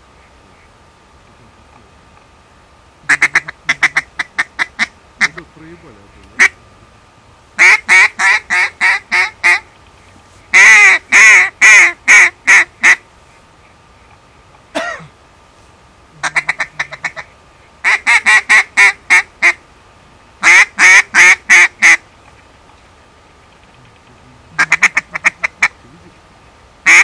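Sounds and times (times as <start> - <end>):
duck call clucks: 3.1 - 5.4, 6.4 - 6.6, 7.6 - 9.7, 10.5 - 13.0, 16.2 - 19.6, 20.4 - 22.0, 24.6 - 25.8
duck call quacks: 3.1 - 5.4, 6.4 - 6.6, 7.6 - 9.6, 10.5 - 13.0, 16.2 - 19.6, 20.4 - 22.0, 24.6 - 25.8.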